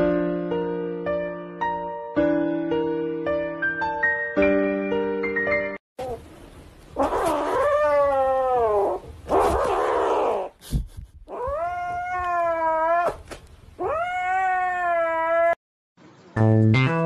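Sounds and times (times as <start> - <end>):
cat yowling: 7.0 - 10.5, 11.3 - 15.6.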